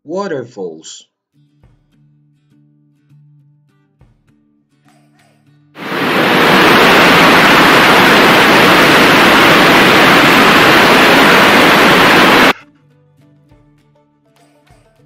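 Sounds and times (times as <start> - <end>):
waterfall rushing: 5.8 - 12.6.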